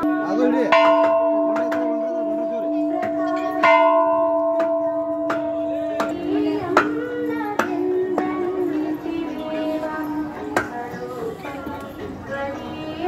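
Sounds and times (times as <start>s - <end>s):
brass bell ringing: 0.0s - 7.2s
person singing: 4.9s - 13.0s.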